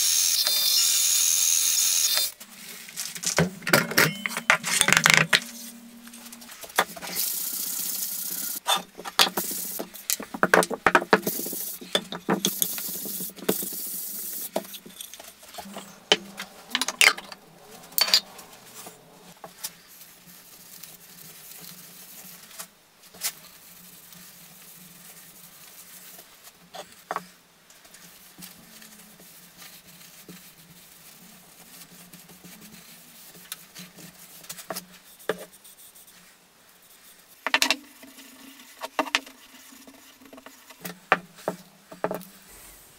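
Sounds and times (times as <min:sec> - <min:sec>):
rough hissing noise with clicks: 0:06.8 - 0:10.3, 0:11.1 - 0:19.8.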